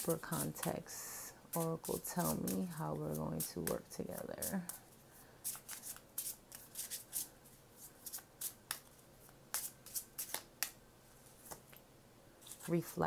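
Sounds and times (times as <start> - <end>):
card deck being shuffled: 5.5 - 7.3, 7.9 - 11.7.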